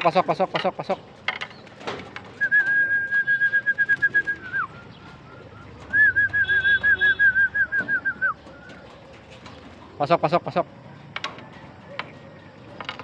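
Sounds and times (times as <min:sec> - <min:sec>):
person whistling trilled call: 0:02.4 - 0:08.7.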